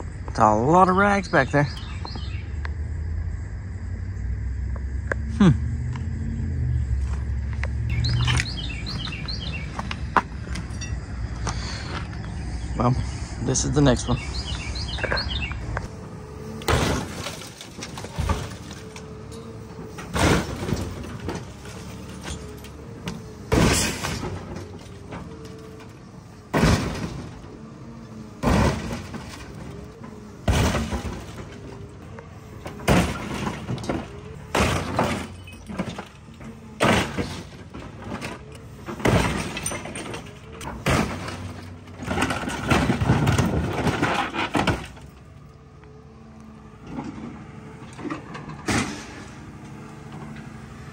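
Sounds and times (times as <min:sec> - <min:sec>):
excavator engine running: 0:00.0 - 0:50.9
excavator bucket crushing car: 0:13.8 - 0:50.9
glass breaking: 0:16.7 - 0:19.4, 0:20.0 - 0:22.7, 0:23.5 - 0:25.0, 0:32.9 - 0:36.1.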